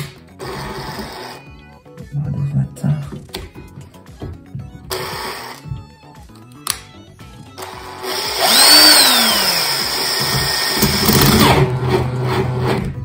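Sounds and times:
electric drill boring metal: 0:00.4 - 0:01.4, 0:04.9 - 0:05.6, 0:07.6 - 0:12.8.

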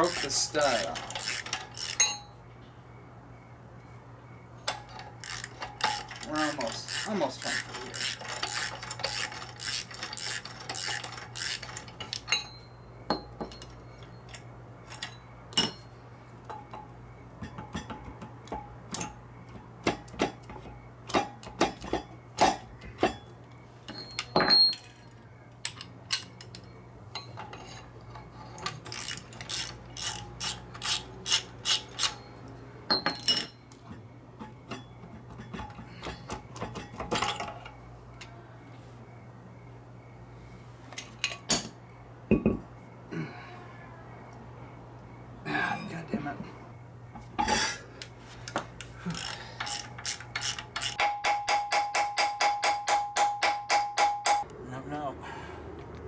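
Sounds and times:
socket ratchet clicking: 0:00.0 - 0:02.0, 0:05.2 - 0:12.3, 0:28.7 - 0:32.2, 0:48.8 - 0:51.0
steel tools clanking: 0:00.0 - 0:02.4, 0:04.6 - 0:38.3, 0:49.0 - 0:54.4.

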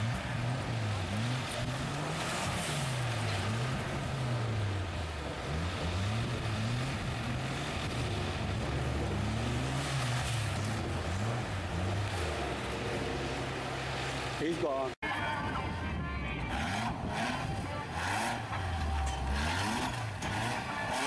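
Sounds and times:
engine revving: 0:00.0 - 0:15.0, 0:16.4 - 0:21.0.

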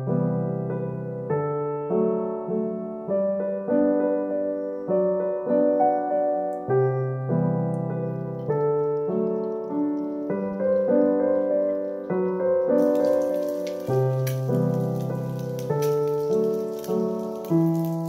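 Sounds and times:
gentle piano chords: 0:00.0 - 0:18.0
eggs frying in hot oil: 0:08.4 - 0:18.0.

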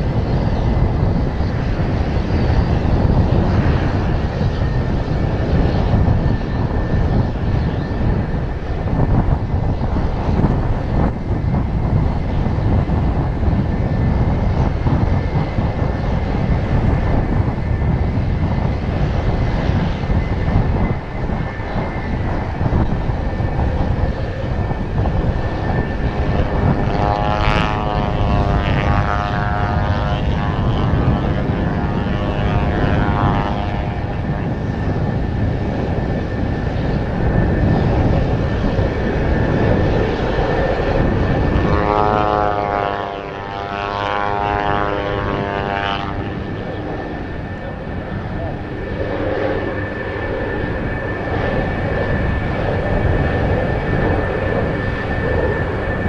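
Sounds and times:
turboprop engine and propeller: 0:00.0 - 0:56.0
wind buffeting microphone: 0:00.0 - 0:56.0.

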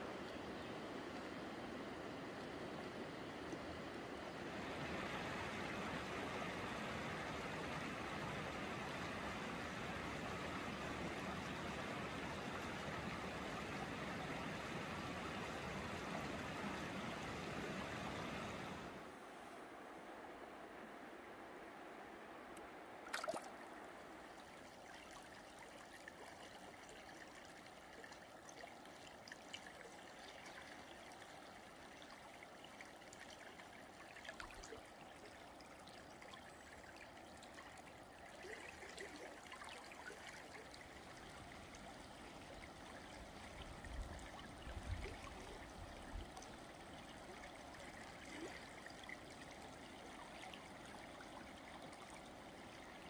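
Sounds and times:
river water flowing: 0:00.0 - 0:53.0
hand splashing water: 0:23.1 - 0:23.5.

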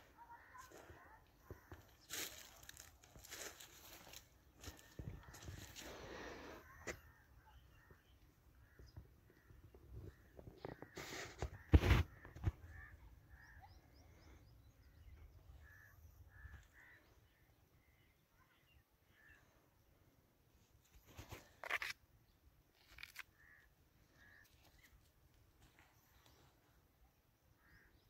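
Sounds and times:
short bird calls: 0:00.1 - 0:19.5, 0:22.8 - 0:25.1.

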